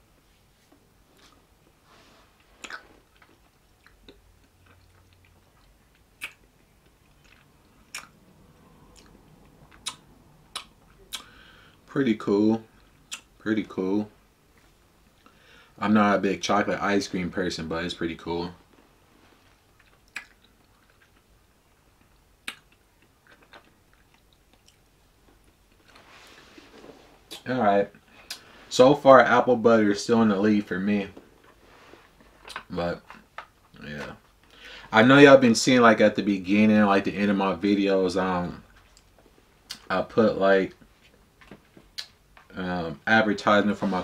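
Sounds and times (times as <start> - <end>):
wet lip smacks and clicks: 2.6 - 8.2, 8.9 - 11.3, 19.8 - 21.2, 22.0 - 25.9, 41.9 - 42.2
wet mouth smacks: 6.2 - 6.4, 19.8 - 20.5.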